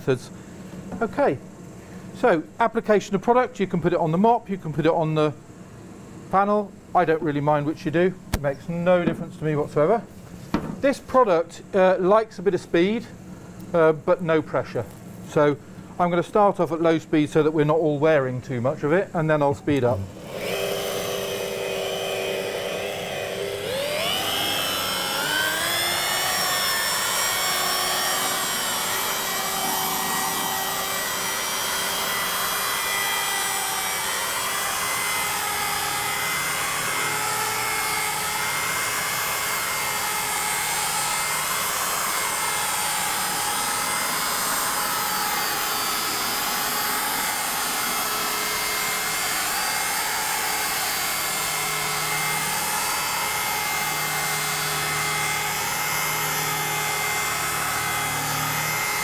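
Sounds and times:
electric polisher whining: 20.1s - 59.0s.

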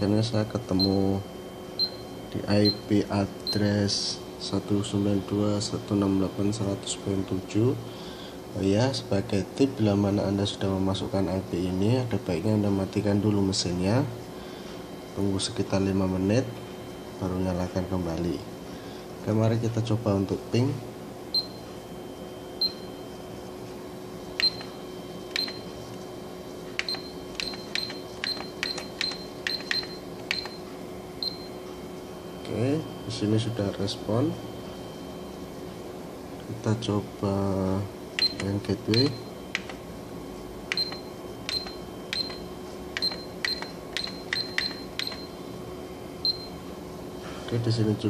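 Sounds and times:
faint steady hum: 0.0s - 48.0s
control panel key beeps: 1.8s - 3.7s, 21.4s - 21.7s, 22.6s - 22.9s, 24.4s - 25.7s, 26.8s - 31.6s, 38.2s - 39.8s, 40.7s - 45.4s, 46.2s - 46.6s
keypad button clicks: 24.4s - 24.7s, 25.3s - 25.6s, 26.8s - 30.6s, 38.2s - 39.8s, 40.7s - 42.4s, 43.0s - 45.3s.

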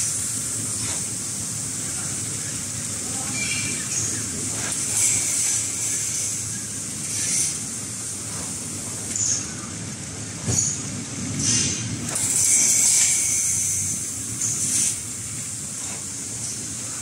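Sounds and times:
wrapping machine running: 0.0s - 17.0s.

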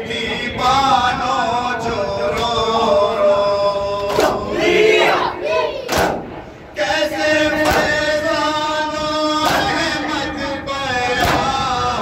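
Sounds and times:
men chanting in unison: 0.0s - 12.0s
sharp slaps: 4.0s - 4.5s, 5.9s - 6.4s, 7.6s - 8.2s, 9.4s - 10.0s, 11.1s - 11.8s.

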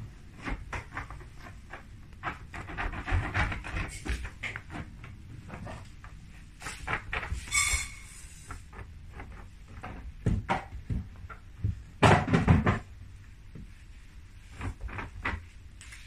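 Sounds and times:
dog digging and scratching mat: 0.1s - 9.8s.

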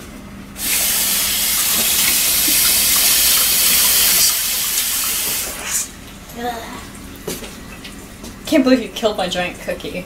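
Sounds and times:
tap running into a sink: 0.6s - 5.7s.

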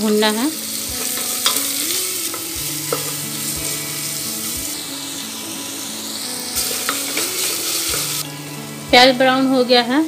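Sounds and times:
background music with soft beat: 0.0s - 10.0s
onions sizzling in hot oil: 0.0s - 10.0s.

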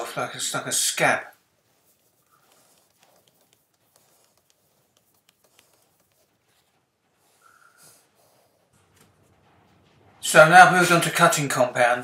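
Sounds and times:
paper towel rubbing metal: 0.0s - 8.8s.

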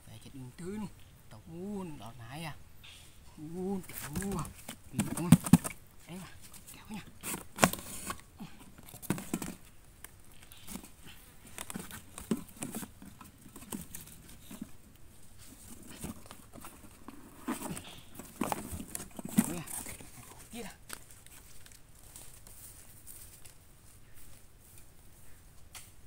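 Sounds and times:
cardboard box taps and rustles: 3.8s - 5.8s, 6.5s - 9.7s, 10.6s - 14.8s, 15.5s - 21.5s.

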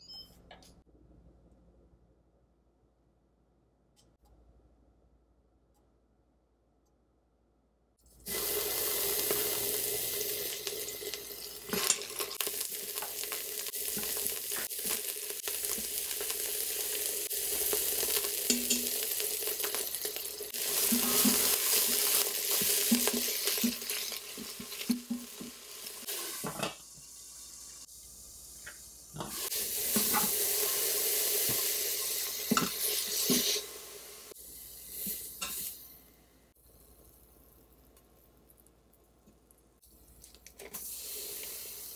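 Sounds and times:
vegetables sizzling in oil: 8.3s - 35.7s
spatula scraping a pot: 20.8s - 22.0s.

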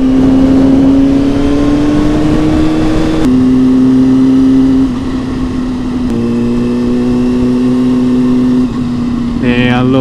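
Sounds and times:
motorcycle engine revving: 0.0s - 10.0s.

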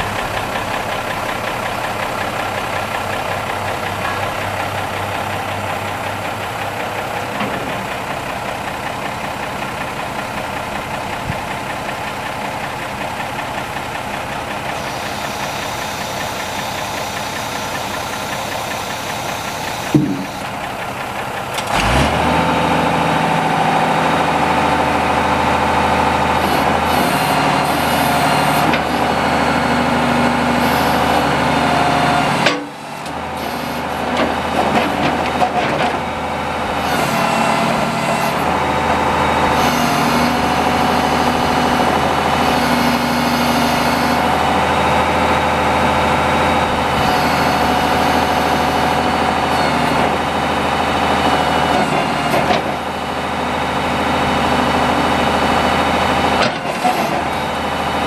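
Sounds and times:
diesel engine running: 0.0s - 58.0s
hydraulic whine: 14.5s - 20.9s, 25.8s - 58.0s.

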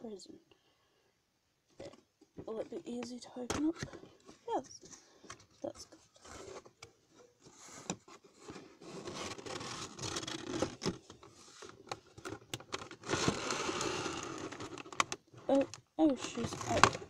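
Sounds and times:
cardboard scraping and rustling: 5.7s - 17.0s.

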